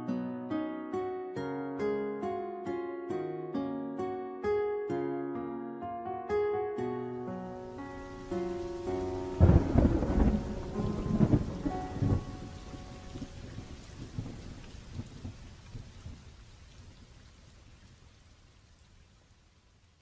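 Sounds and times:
soft plucked music notes: 0.0 - 13.9
steady rain: 7.3 - 20.0
deep rumble of thunder: 8.0 - 16.3.

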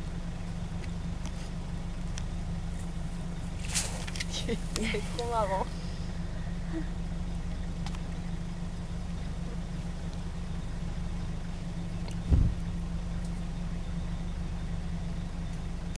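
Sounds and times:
vehicle engine idling: 0.0 - 16.0
short low thump: 12.1 - 12.7.

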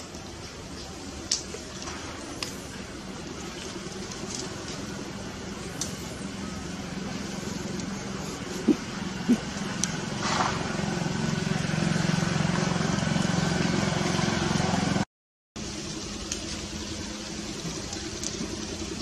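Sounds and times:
low motor hum: 0.0 - 15.0, 15.6 - 19.0.

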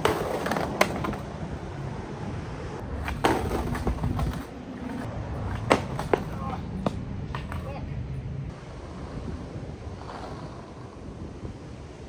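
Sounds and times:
skateboard clack: 0.0 - 1.3, 3.0 - 7.8
skateboard scraping concrete curb: 0.0 - 1.3, 3.0 - 6.4, 9.0 - 11.4
skateboard wheels rolling on asphalt: 0.0 - 12.0.

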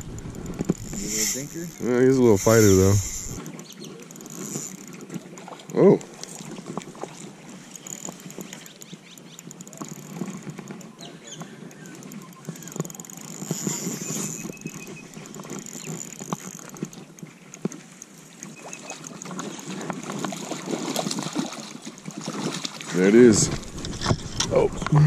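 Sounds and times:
reel handling clicks and taps: 0.0 - 20.4
fish splashing at water surface: 17.7 - 24.4.

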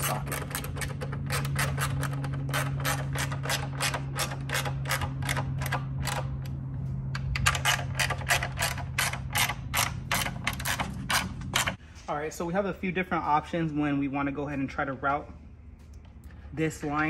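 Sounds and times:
socket ratchet clicking: 7.2 - 11.8.

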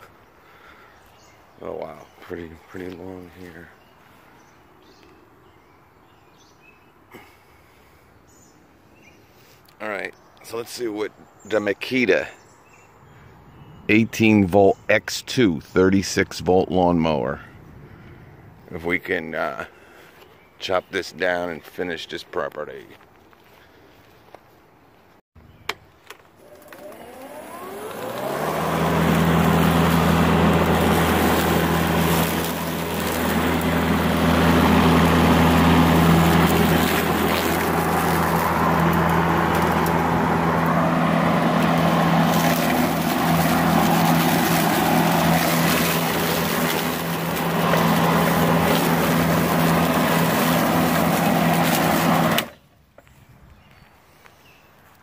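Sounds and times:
cordless lawn mower running: 26.1 - 52.6.

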